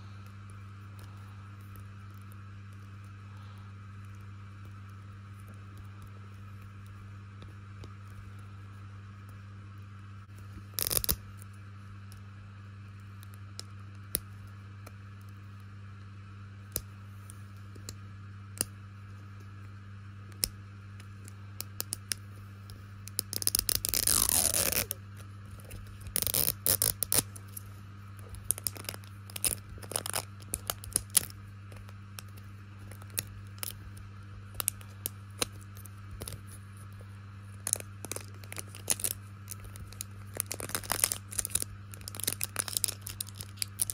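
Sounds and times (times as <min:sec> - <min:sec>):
plastic wrap tearing: 0:10.7 - 0:11.2, 0:23.0 - 0:33.8, 0:34.5 - 0:36.6, 0:37.5 - 0:43.9
fingernails scraping plastic wrapper: 0:23.0 - 0:33.8, 0:37.5 - 0:43.9.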